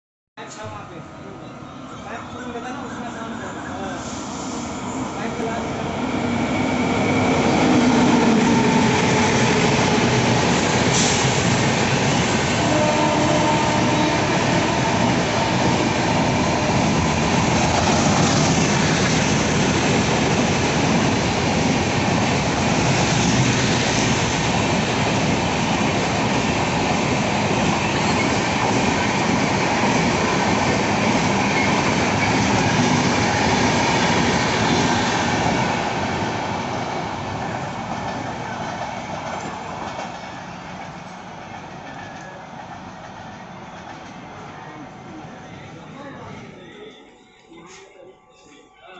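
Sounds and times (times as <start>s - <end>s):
train wheels rumbling on rails: 3.9s - 44.5s.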